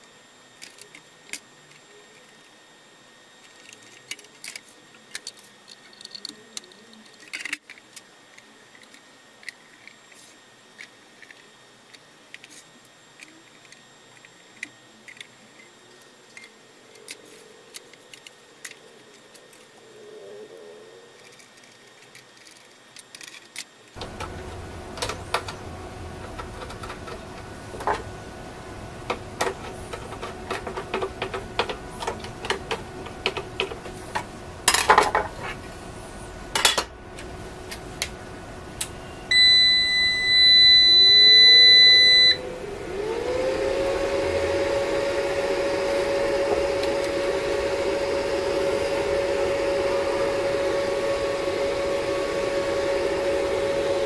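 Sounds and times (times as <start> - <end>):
cooling fan whine and hum: 0.0 - 54.0
casing clicks and knocks: 29.0 - 35.4
long high beep: 39.0 - 42.4.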